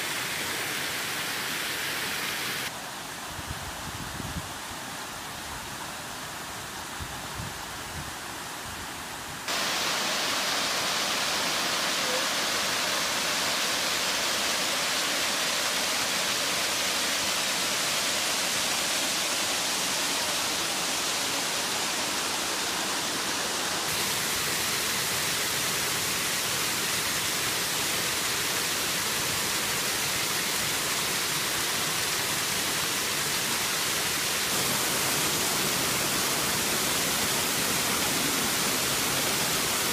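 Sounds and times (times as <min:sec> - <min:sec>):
water rushing over rock: 0:32.6 - 0:39.9.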